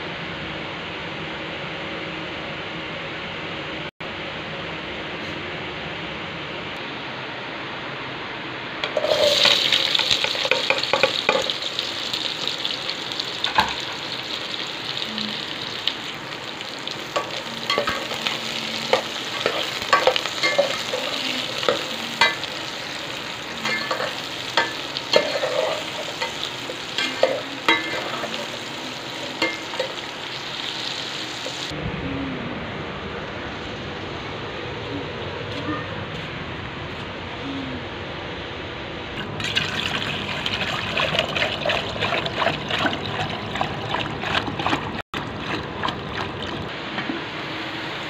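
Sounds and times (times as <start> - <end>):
metal skimmer scraping pot: 8.8 - 11.6, 23.6 - 28.7, 40.3 - 47.2
onions sizzling in hot oil: 8.8 - 31.8.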